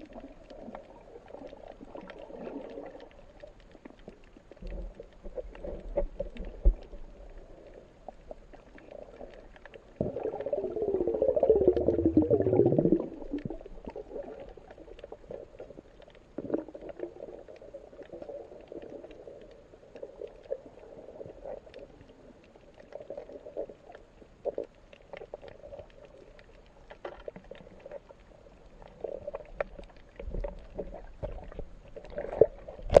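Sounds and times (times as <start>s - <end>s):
faint underwater clicks: 0.0s - 33.0s.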